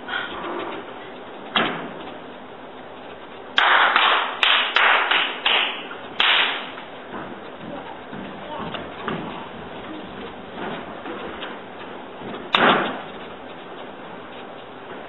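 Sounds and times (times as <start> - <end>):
sharp cracks: 3.6 - 6.8.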